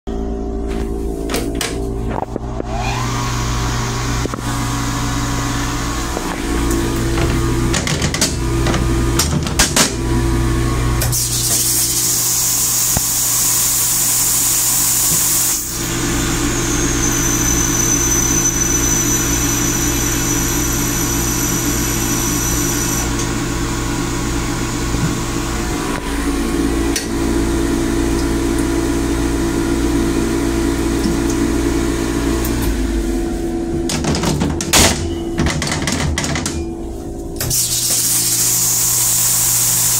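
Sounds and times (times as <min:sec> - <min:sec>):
toilet flushing: 0:01.2 - 0:39.9
rail car low hum: 0:36.5 - 0:37.4.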